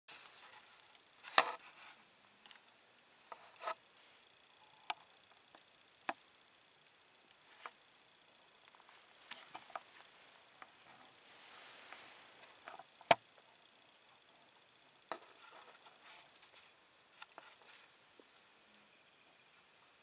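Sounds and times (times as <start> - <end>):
high-pitched insect trill: 0.2 - 20.0.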